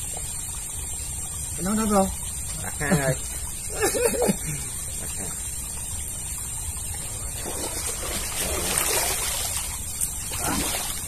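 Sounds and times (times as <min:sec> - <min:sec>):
muddy water splashing: 0:06.9 - 0:11.0.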